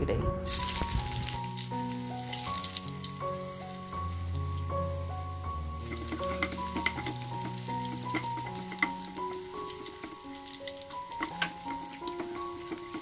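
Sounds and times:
shallots sizzling in hot oil: 0.4s - 13.0s
steel spoon stirring in pan: 5.8s - 13.0s.

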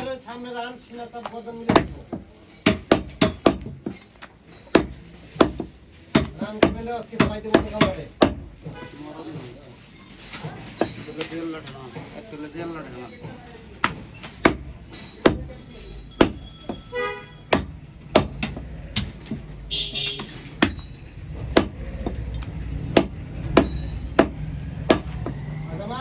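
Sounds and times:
cleaver chopping on wooden block: 1.7s - 4.0s, 17.5s - 19.5s, 21.4s - 25.4s.

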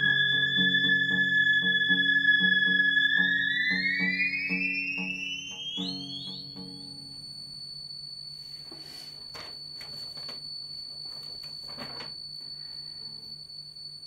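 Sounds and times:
low hum: 0.0s - 8.6s
theremin high steady tone: 0.0s - 14.0s.

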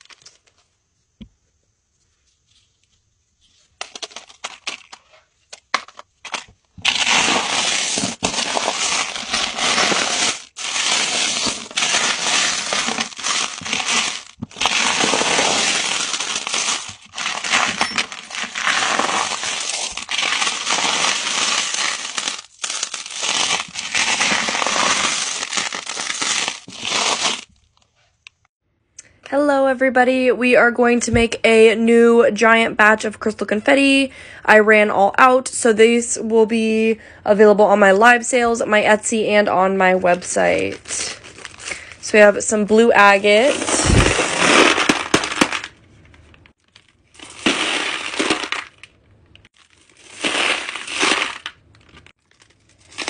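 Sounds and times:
foil crinkling: 0.0s - 0.6s, 3.8s - 27.8s, 40.5s - 42.0s, 43.4s - 45.8s, 46.5s - 53.0s.

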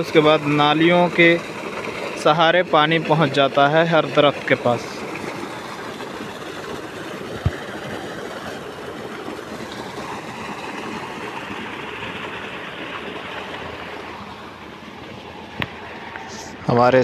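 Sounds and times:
water gushing into basin: 0.0s - 16.6s.

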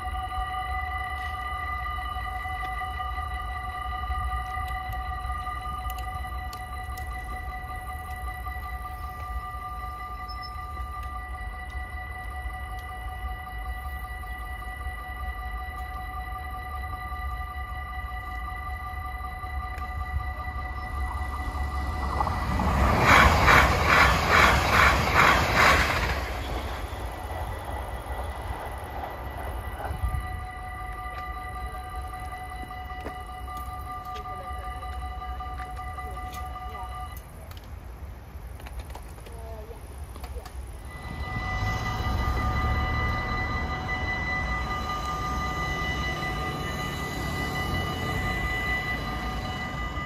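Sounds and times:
level crossing warning tones: 0.0s - 37.7s, 39.9s - 50.0s
car driving over crossing: 19.8s - 31.6s, 40.9s - 50.0s
train wheels clacking over rail joints: 22.0s - 30.1s.

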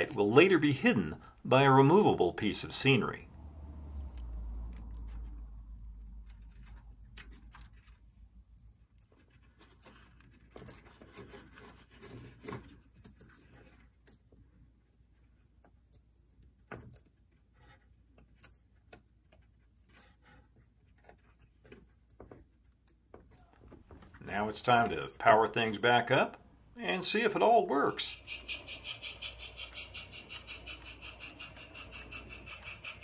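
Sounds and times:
low hum: 1.2s - 7.6s.

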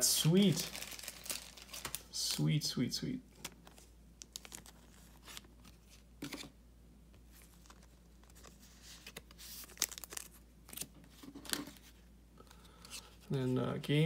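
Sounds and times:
thin plastic crinkling: 0.2s - 2.2s, 3.3s - 6.5s, 7.3s - 13.1s.

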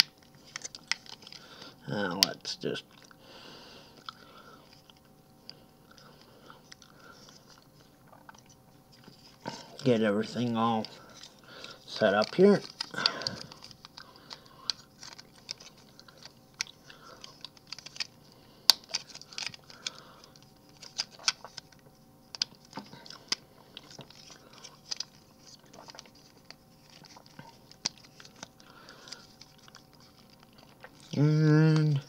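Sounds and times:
plastic parts clicking and snapping: 12.1s - 18.1s, 18.7s - 28.5s.

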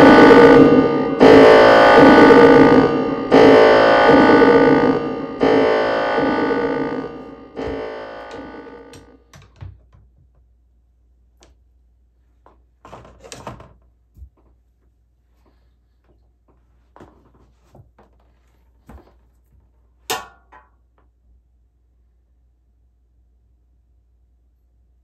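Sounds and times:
synthesizer chords: 0.0s - 9.3s.

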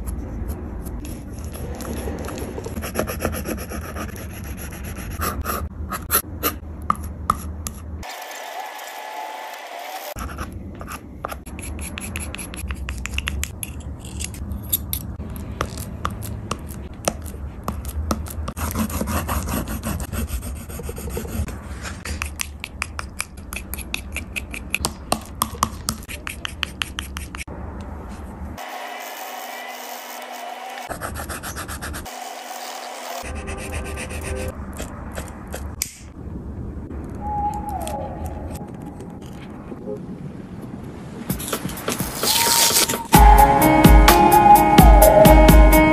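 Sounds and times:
pastel scratching on paper: 0.9s - 6.6s, 17.2s - 22.3s, 26.0s - 27.5s
palette knife scraping: 15.6s - 24.9s.

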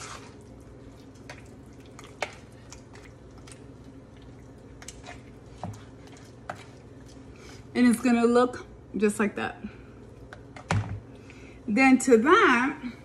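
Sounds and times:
wet squishing of stirred chicken: 0.0s - 8.2s.

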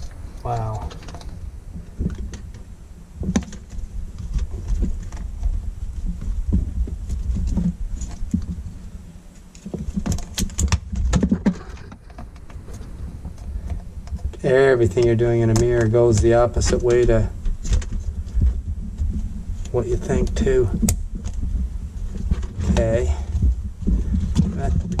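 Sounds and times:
plastic parts clicking and rustling: 0.0s - 2.6s
steady low hum: 0.0s - 25.0s.

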